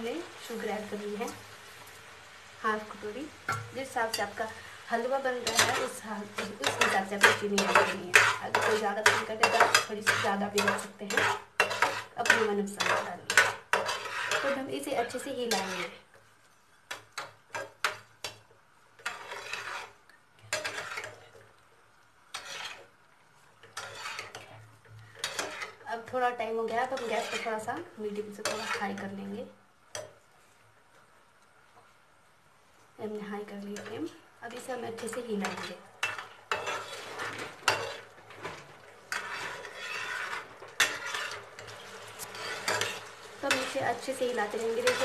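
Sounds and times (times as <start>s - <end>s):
spatula tapping metal pan: 3.5s - 4.3s, 5.4s - 15.9s, 16.9s - 19.9s, 20.5s - 21.2s, 25.2s - 25.8s, 29.9s - 30.2s, 35.0s - 37.0s, 37.6s - 38.1s, 39.1s - 41.7s, 42.3s - 45.0s
spatula scraping pan bottom: 5.3s - 16.0s, 19.0s - 21.4s, 22.3s - 22.9s, 23.6s - 25.8s, 26.6s - 29.1s, 34.6s - 45.0s.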